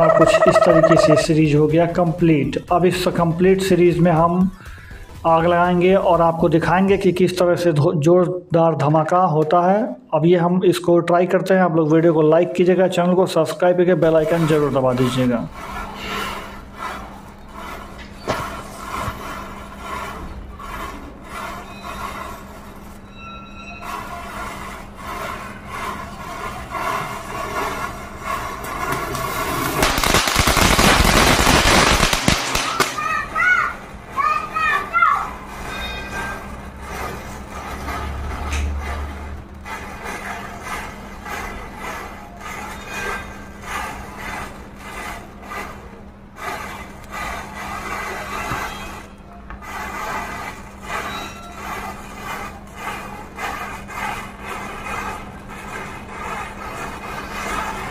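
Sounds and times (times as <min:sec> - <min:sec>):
matches hissing as they flare: 0:28.4 - 0:33.7
sharp crack: 0:29.6 - 0:33.3.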